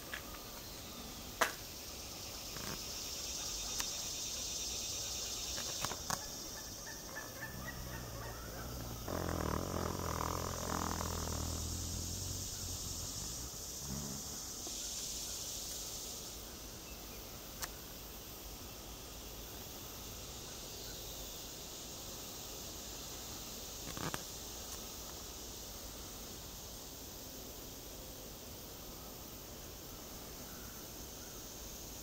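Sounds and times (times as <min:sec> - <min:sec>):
insects buzzing: 0:00.0 - 0:32.0
low humming rumble: 0:07.5 - 0:14.5.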